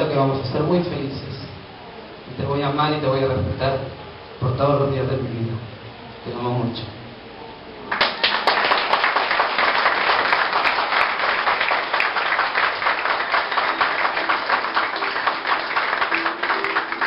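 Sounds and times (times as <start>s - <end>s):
crowd applauding: 7.9s - 17.0s.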